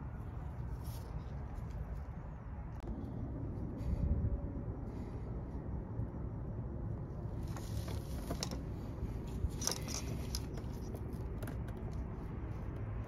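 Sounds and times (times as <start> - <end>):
steady low rumble: 0.0 - 13.0
light clicks and scrapes: 7.3 - 13.0.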